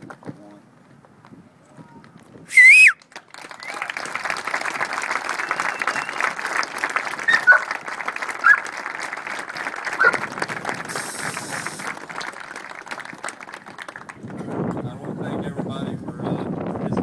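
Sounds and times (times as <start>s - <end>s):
short high cheers: 1.8s - 4.0s, 5.3s - 6.6s
crowd applauding: 2.6s - 15.1s.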